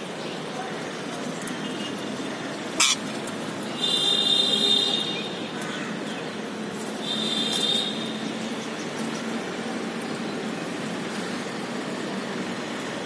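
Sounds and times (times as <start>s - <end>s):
parakeets calling: 2.4s - 4.0s
parakeet sharp shriek: 2.8s - 3.1s
shrill squealing calls: 2.8s - 3.1s.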